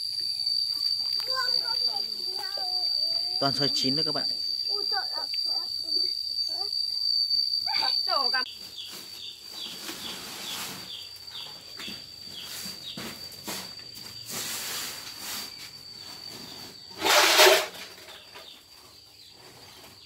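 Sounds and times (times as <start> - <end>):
high insect chirping: 0.0 - 20.0
mangoes rolling on concrete: 7.5 - 20.0.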